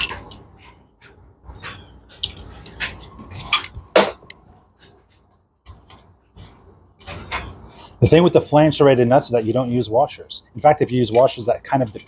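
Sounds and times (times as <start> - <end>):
wrench clinking and scraping metal: 0.0 - 0.7, 2.1 - 3.8, 10.6 - 12.0.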